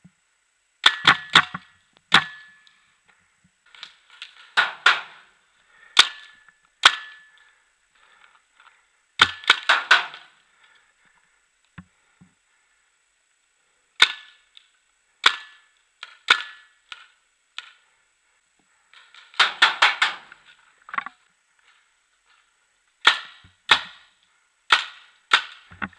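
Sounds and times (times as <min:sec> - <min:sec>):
paintball markers firing: 0:03.7 - 0:05.2, 0:09.2 - 0:10.4, 0:19.0 - 0:20.4, 0:23.0 - 0:24.1, 0:24.7 - 0:25.7.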